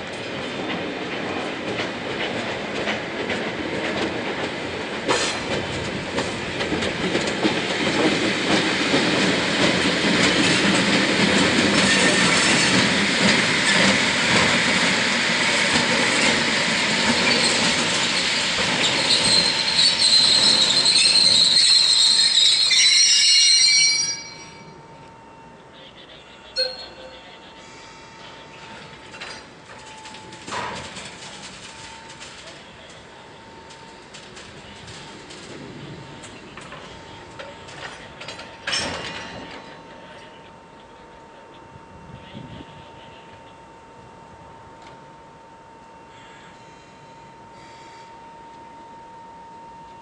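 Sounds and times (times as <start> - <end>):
high wheel squeal: 17.0 - 24.8.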